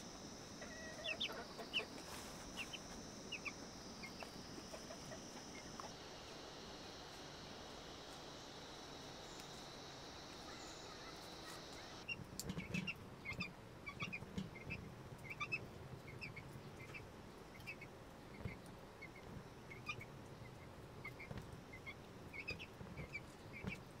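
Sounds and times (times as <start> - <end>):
high insect drone: 0.0 - 12.1.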